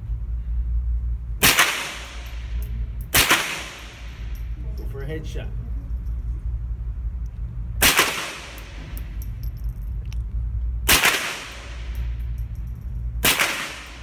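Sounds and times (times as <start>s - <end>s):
steady low rumble: 0.0s - 14.0s
rifle gunshots echoing indoors: 1.4s - 4.3s, 7.8s - 9.0s, 10.9s - 12.0s, 13.2s - 14.0s.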